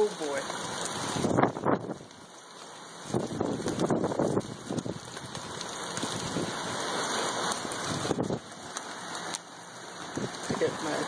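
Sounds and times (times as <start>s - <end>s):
hailstones hitting: 0.0s - 11.0s
heavy rain on pavement: 0.0s - 11.0s.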